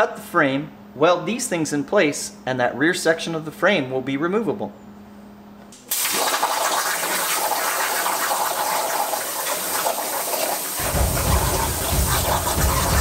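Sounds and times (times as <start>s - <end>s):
plasma arc hiss: 9.5s - 13.0s
low rumble: 10.8s - 13.0s.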